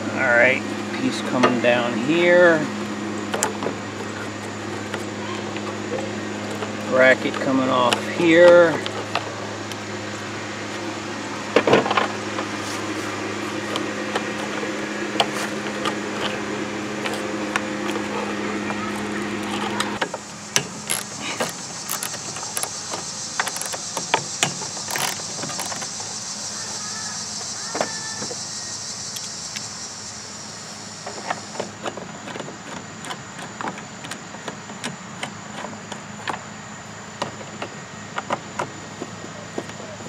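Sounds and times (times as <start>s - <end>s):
steady high hiss: 0.0s - 31.7s.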